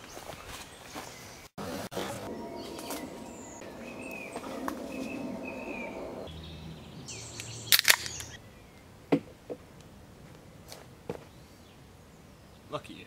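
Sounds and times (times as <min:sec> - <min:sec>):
birds chirping: 0:00.0 - 0:08.9
outdoor ambience: 0:00.0 - 0:13.0.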